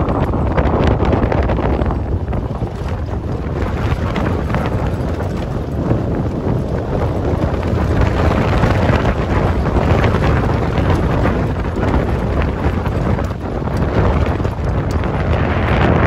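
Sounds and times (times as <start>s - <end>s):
vehicle rumbling on gravel: 0.0s - 16.0s
wind buffeting microphone: 0.0s - 16.0s.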